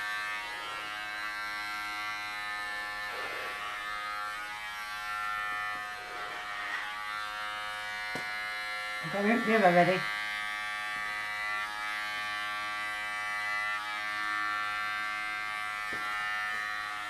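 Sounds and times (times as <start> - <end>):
electric hair clippers buzzing: 0.0 - 17.0.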